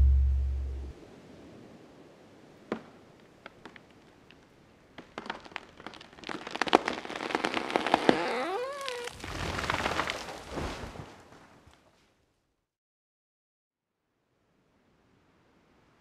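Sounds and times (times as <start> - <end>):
tree wood cracking and popping: 2.7 - 11.8
tree crashing to the ground: 5.0 - 8.2, 9.0 - 11.7
tree trunk creaking groan: 5.0 - 10.2.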